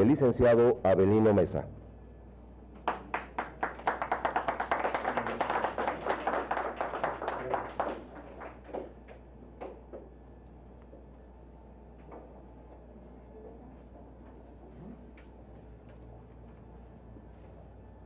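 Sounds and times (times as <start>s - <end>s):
audience applauding: 2.8s - 9.0s.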